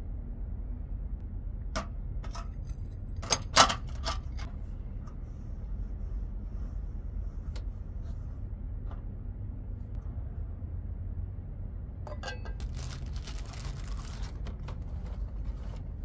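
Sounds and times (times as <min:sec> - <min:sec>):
steady low rumble: 0:00.0 - 0:16.0
metal cup knocks and clinks: 0:12.1 - 0:12.6.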